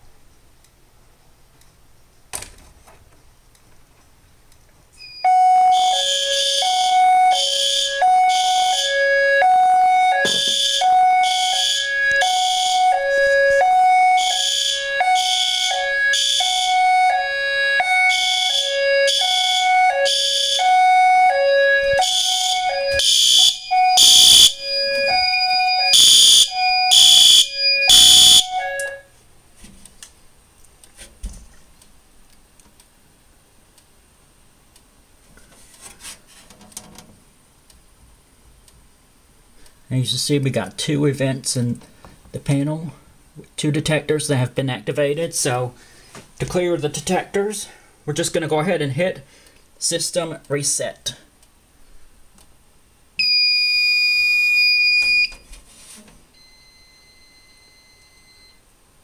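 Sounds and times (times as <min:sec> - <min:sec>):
pulsed two-tone fire alarm: 0:05.0 - 0:29.1, 0:53.2 - 0:55.4, 0:56.4 - 0:58.6.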